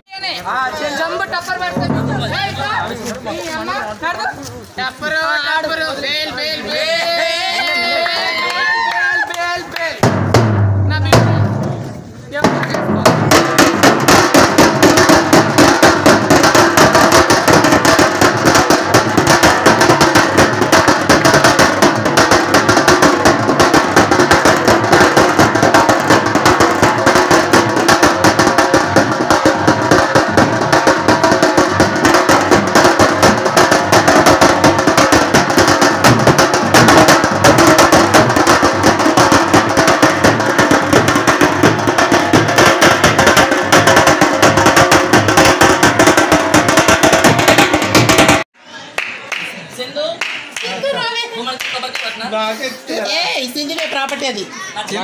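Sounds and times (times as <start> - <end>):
loud music with fast drumming: 12.4 - 48.4.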